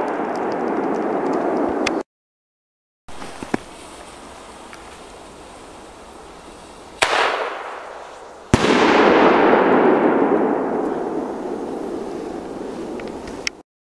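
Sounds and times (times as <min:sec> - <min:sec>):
firework bangs: 0:00.0 - 0:01.9, 0:03.1 - 0:13.5
crackling hiss of falling sparks: 0:03.1 - 0:09.1, 0:10.7 - 0:13.6.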